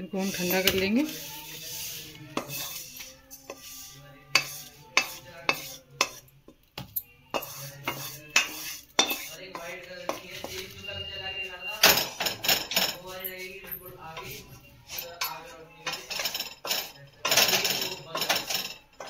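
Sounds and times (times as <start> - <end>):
wooden spatula knocking on steel: 4.3 - 6.2, 6.8 - 10.6.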